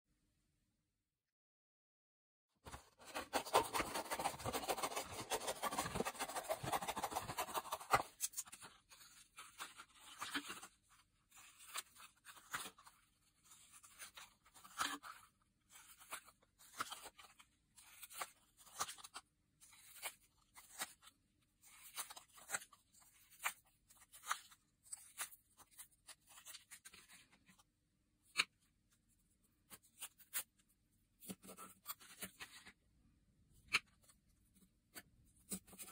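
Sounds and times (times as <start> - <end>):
paper plate rustling: 2.7 - 15.2.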